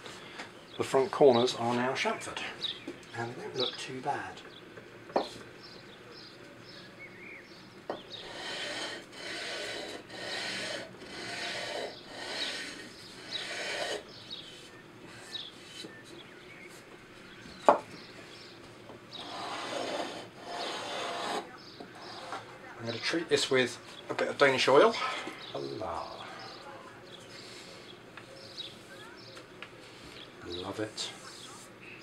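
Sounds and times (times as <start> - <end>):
sandpaper rasping on wood: 8.2 - 15.9, 19.2 - 22.5.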